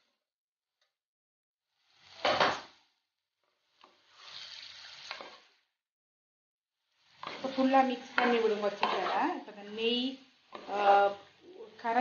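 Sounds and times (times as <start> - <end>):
chicken sizzling: 1.7 - 5.8, 6.8 - 12.0
spatula scraping in pot: 3.8 - 5.6, 7.0 - 11.8.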